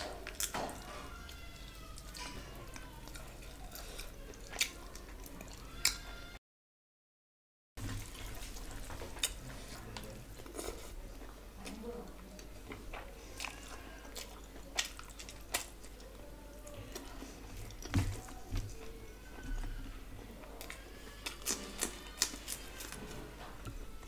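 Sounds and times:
close chewing: 0.0s - 6.2s, 8.0s - 24.0s.

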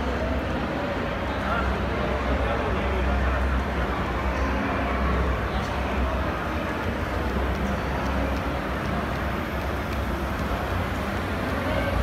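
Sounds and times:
model train running on track: 3.4s - 12.0s
faint track clicks: 7.0s - 11.6s.

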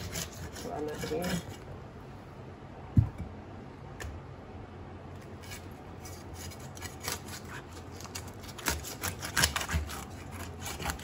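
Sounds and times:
knife scraping and cutting fish: 0.0s - 1.7s, 5.2s - 11.0s.

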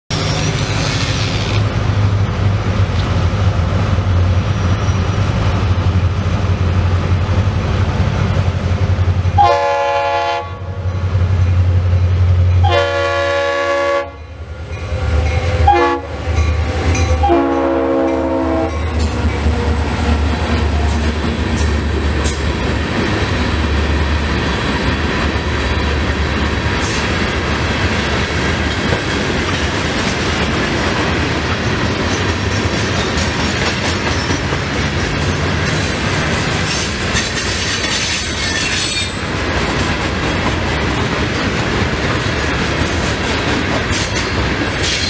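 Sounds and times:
freight cars rolling: 0.1s - 9.4s
diesel locomotive engines rumbling: 0.1s - 45.0s
train air horn: 9.4s - 10.8s, 12.6s - 14.2s, 15.5s - 18.8s.

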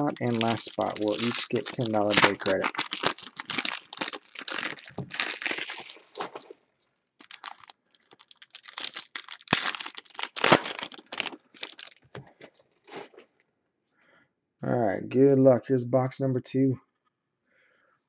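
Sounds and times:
foil wrappers crinkling: 0.0s - 6.6s, 7.2s - 13.2s.

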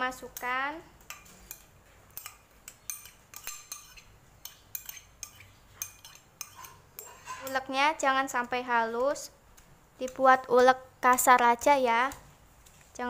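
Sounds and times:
metal spoon scraping ceramic bowl: 1.1s - 7.8s.

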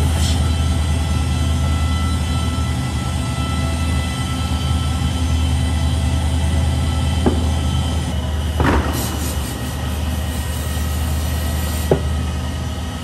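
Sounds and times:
brief high hiss: 8.8s - 11.9s.

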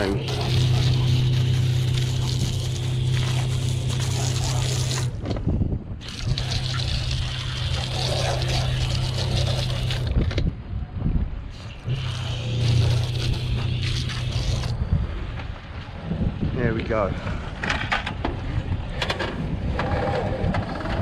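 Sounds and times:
hose spraying water: 0.0s - 5.2s, 6.0s - 10.2s, 11.5s - 14.8s
pump humming: 0.0s - 5.2s, 6.0s - 10.2s, 11.5s - 14.9s.

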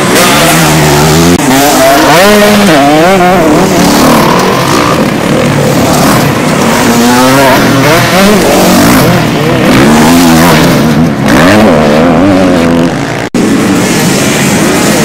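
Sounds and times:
motorcycle engines revving: 0.0s - 15.0s.

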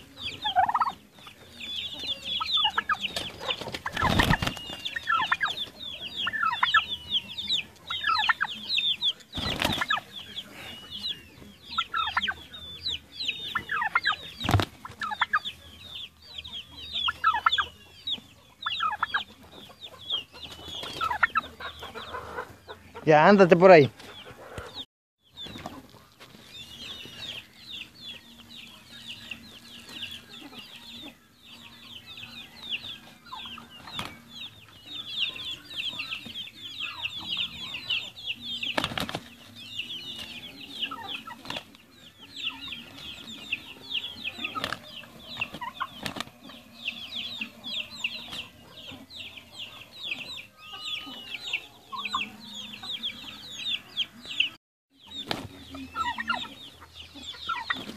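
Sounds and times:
small birds chirping: 0.0s - 57.9s
wings flapping: 2.8s - 5.8s, 9.4s - 10.1s, 14.4s - 15.0s, 38.7s - 39.4s, 44.4s - 46.3s, 55.2s - 55.6s.

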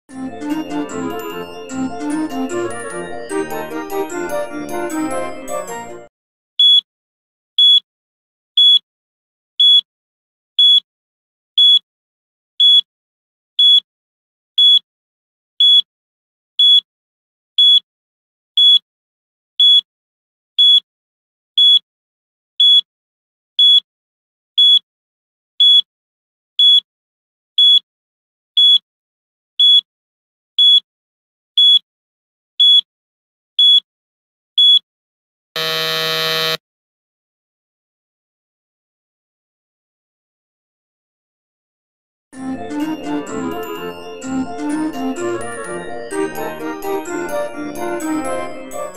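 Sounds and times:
short high electronic beeps: 35.6s - 36.6s.

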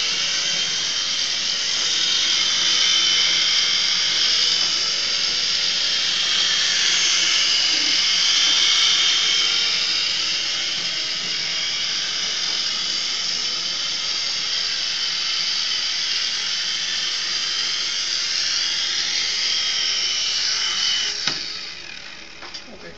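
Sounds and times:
toy helicopter high-pitched whine: 0.0s - 22.9s.

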